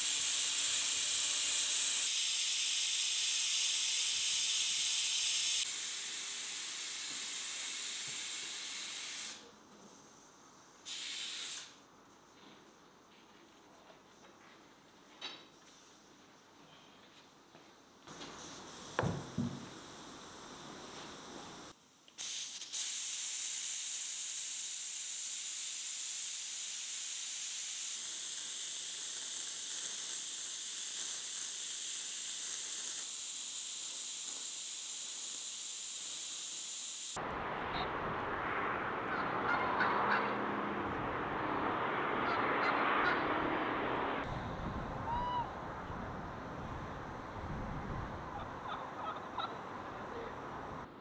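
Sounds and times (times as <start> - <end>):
steam hissing from pressure valves: 0.0 - 10.0, 10.8 - 11.8, 18.1 - 37.2
farmyard birds calling: 39.1 - 40.4, 42.2 - 43.3, 48.3 - 50.2.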